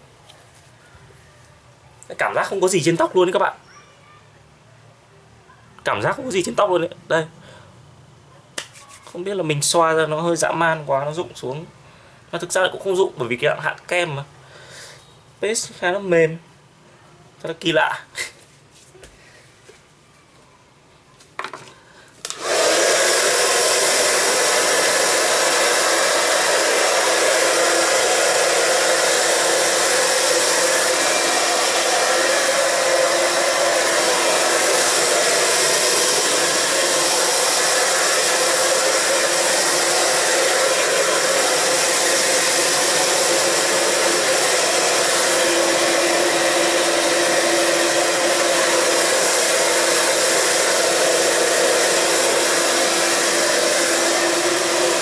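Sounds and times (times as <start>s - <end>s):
hair dryer blowing: 22.2s - 55.0s.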